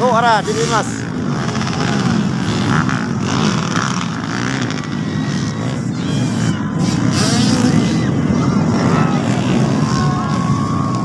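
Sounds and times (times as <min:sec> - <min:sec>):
dirt bike engines racing: 0:00.0 - 0:11.0.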